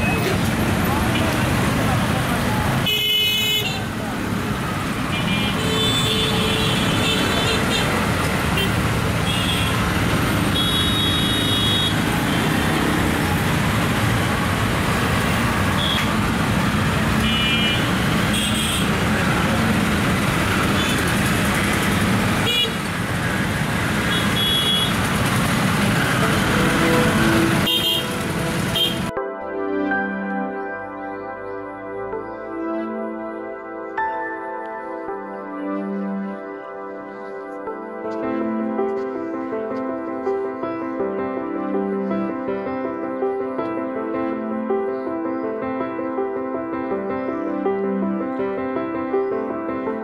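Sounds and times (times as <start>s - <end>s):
people's voices: 0.0s - 2.9s
traffic engines running: 0.0s - 29.2s.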